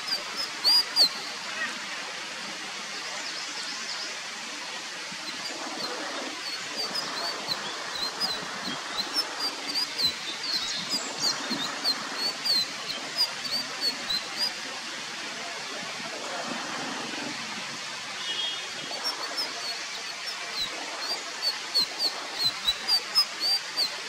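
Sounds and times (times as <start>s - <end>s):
background hiss: 0.0s - 15.6s.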